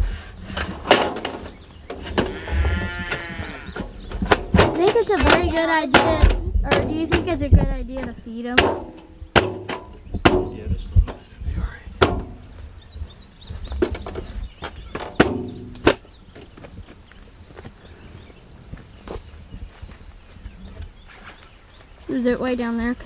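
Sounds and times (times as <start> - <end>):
insects chirring: 0.0 - 23.0
sharp knocks: 3.1 - 11.3, 12.0 - 12.6, 14.9 - 16.1.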